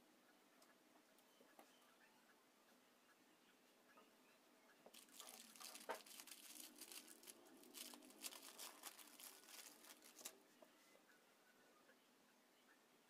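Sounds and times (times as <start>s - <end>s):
plastic bag crinkling: 4.9s - 10.4s.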